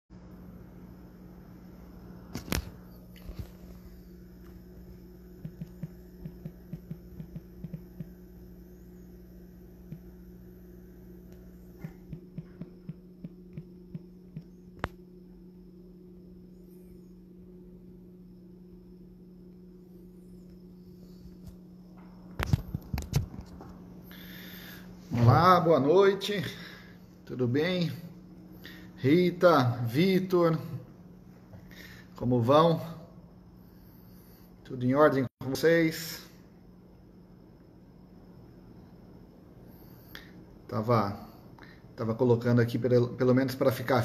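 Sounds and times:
steady low hum: 0.1s - 44.0s
phone being tapped and handled: 5.4s - 8.2s.

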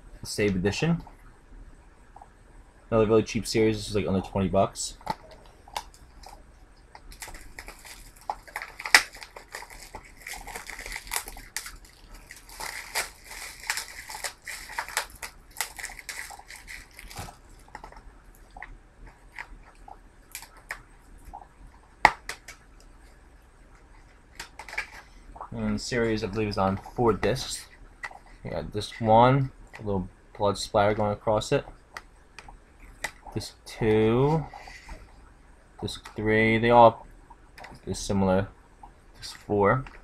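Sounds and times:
plastic wrap crinkling: 5.1s - 20.8s.

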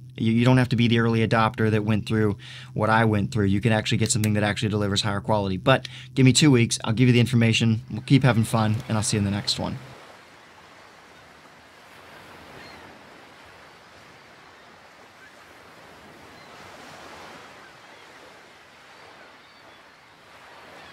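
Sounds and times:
ocean waves washing ashore: 7.8s - 20.9s.

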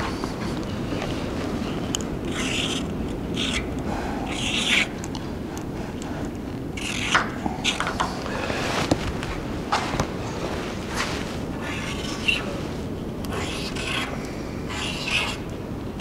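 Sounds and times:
marker scratching on rusty steel: 2.3s - 2.8s, 4.3s - 4.9s, 6.8s - 7.9s, 13.3s - 14.1s, 14.7s - 15.4s.

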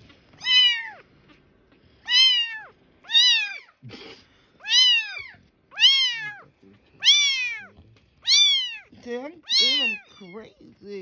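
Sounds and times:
kitten meowing loudly: 0.4s - 1.0s, 2.1s - 3.7s, 4.6s - 6.4s, 7.0s - 8.9s.

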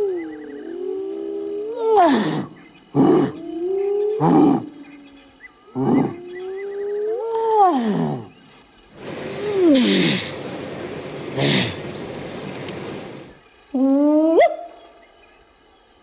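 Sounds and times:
man imitating lion roar: 1.9s - 3.5s, 4.2s - 4.8s, 5.7s - 6.4s, 9.4s - 10.4s
harsh breathy grunts: 5.8s - 6.2s.

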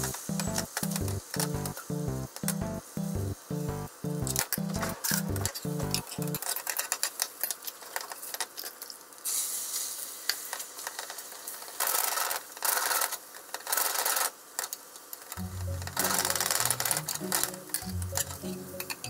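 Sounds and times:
music with bass line: 0.0s - 6.4s, 15.4s - 19.0s
egg sizzling in frying pan: 5.6s - 19.0s.

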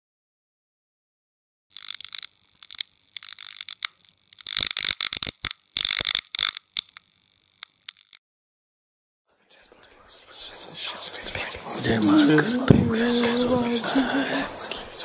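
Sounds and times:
neon tubes buzzing and crackling: 1.7s - 8.2s
sharp clicks: 1.7s - 8.2s.

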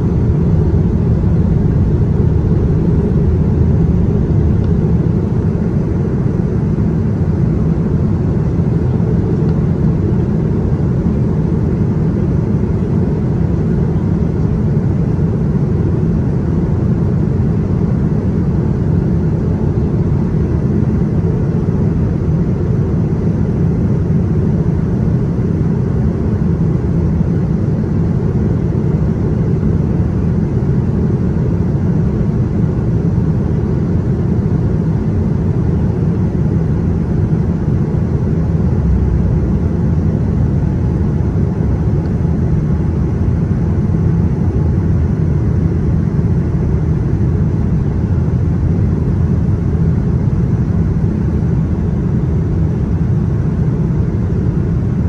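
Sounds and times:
jet airliner cabin rumble: 0.0s - 55.0s.

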